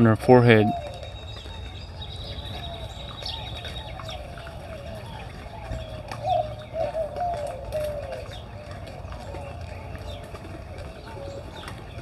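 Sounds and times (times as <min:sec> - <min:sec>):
doves cooing: 0:00.0 - 0:12.0
small birds chirping: 0:00.0 - 0:12.0.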